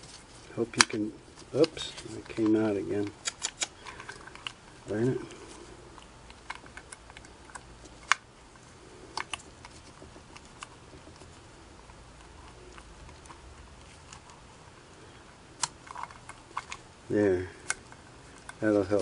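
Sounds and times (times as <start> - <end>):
metal parts clicking: 1.6 - 4.6.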